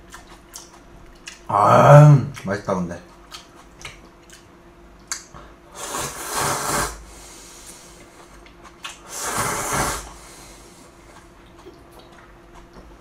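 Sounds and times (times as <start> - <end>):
person slurping noodles: 5.8 - 7.6, 9.0 - 10.7.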